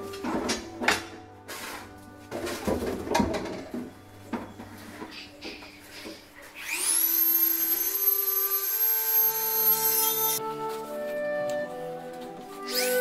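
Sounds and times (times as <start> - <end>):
rotary tool whining: 5.9 - 10.4, 12.6 - 13.0.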